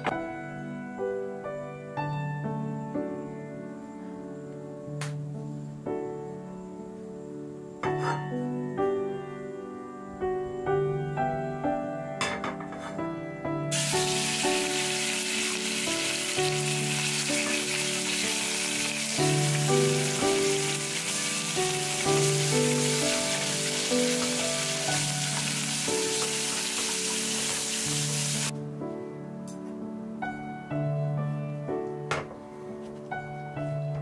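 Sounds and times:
background piano music: 0.0 - 34.0
pork sizzling in oil: 13.7 - 28.5.

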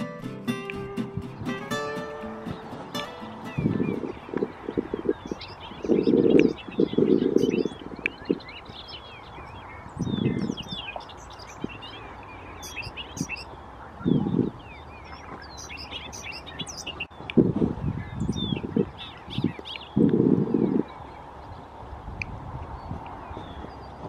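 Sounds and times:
birds singing jumbled high notes: 0.0 - 21.2.

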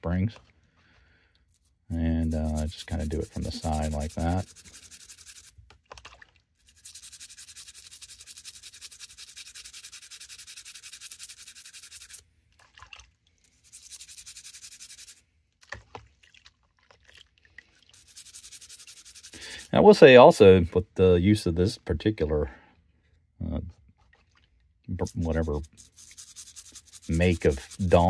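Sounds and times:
toothbrush scrubbing: 1.9 - 5.6, 6.6 - 15.2, 16.2 - 19.7, 24.2 - 28.0.

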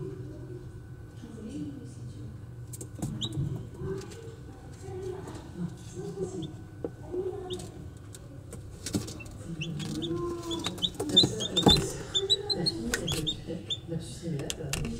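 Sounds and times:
chicks peeping: 3.0 - 3.6, 8.8 - 13.9.

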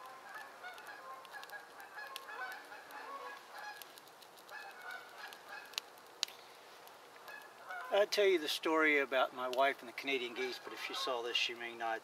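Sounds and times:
geese honking in distance: 0.0 - 5.9, 7.2 - 8.1, 10.1 - 11.2.

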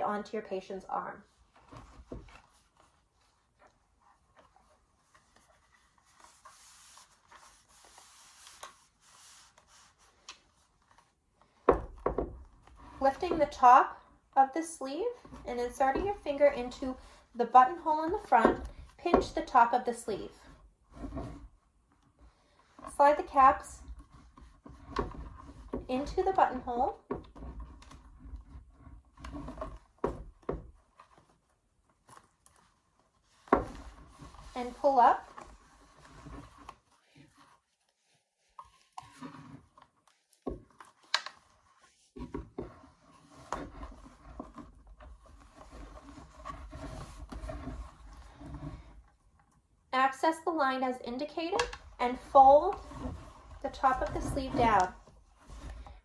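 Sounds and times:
fabric rubbing: 1.4 - 11.6, 22.9 - 49.1, 51.9 - 56.0.

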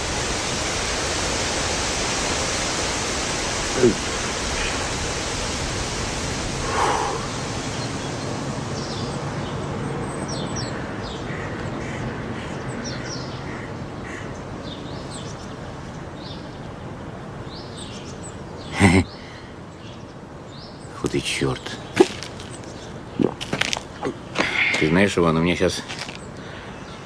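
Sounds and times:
steady hiss: 0.0 - 11.4, 14.6 - 27.0
small birds chirping: 0.0 - 27.0
loud harsh bird call: 6.6 - 9.1, 20.8 - 27.0.

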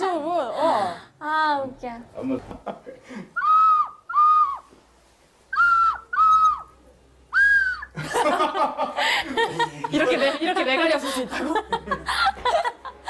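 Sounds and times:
people laughing: 8.0 - 13.0
people chattering: 9.3 - 12.3.

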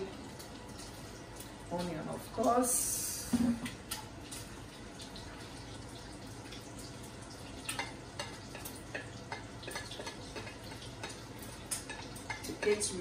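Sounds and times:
food sizzling in a skillet: 0.0 - 13.0.

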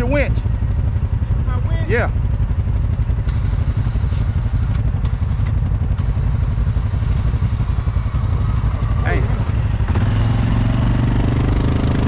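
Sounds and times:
atv engine idling: 0.0 - 11.1.

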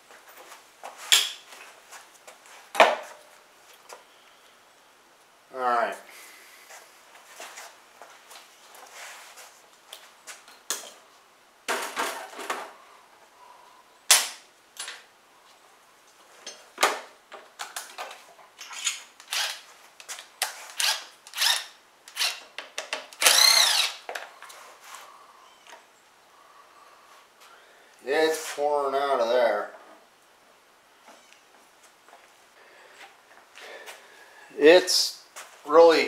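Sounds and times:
power driver whirring: 23.2 - 24.0.

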